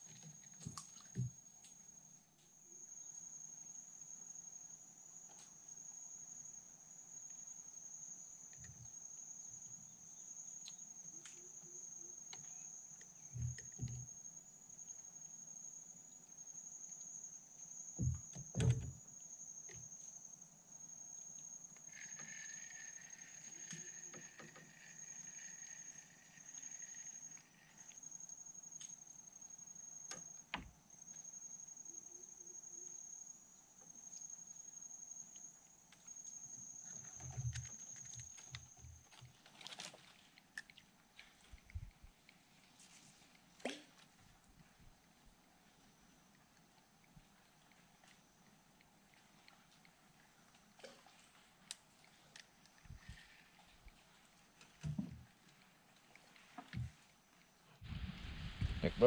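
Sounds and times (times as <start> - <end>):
insects trilling: 0.0 - 58.0
lower insect buzzing call: 21.0 - 28.6.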